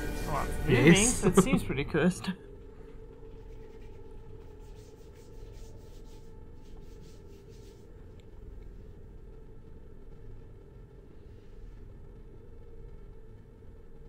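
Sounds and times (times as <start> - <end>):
low steady hum: 0.0 - 14.0
hands rubbing over skin: 3.3 - 8.1.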